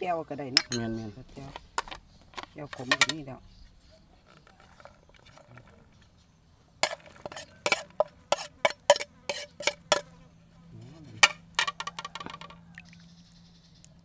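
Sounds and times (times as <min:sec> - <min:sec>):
metal spoon clinking on plate: 0:00.6 - 0:01.1
plate set down on plates: 0:11.2 - 0:12.6.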